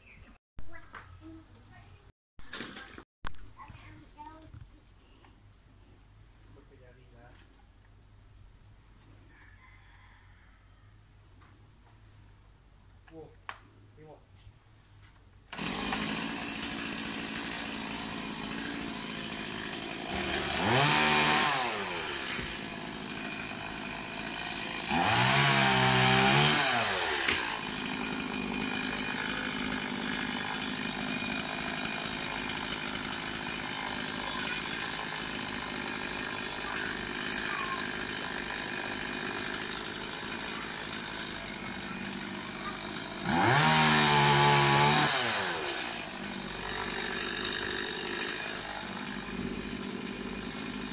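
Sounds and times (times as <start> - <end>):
chainsaw idling and revving: 15.5 - 50.9.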